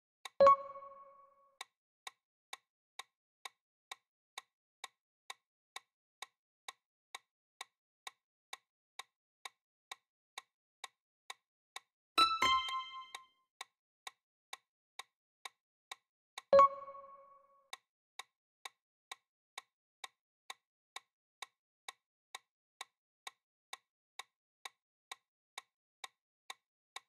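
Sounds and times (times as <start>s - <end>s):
clock ticking timer: 0.2s - 1.7s, 12.2s - 13.2s, 16.6s - 17.8s.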